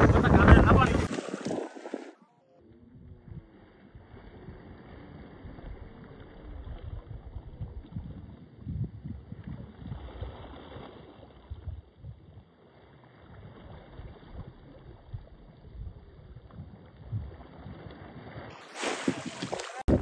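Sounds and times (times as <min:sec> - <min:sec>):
rushing water: 0:00.0 - 0:02.2, 0:17.4 - 0:20.0
wind buffeting microphone: 0:00.0 - 0:02.2, 0:03.0 - 0:12.5, 0:13.3 - 0:17.9, 0:18.8 - 0:20.0.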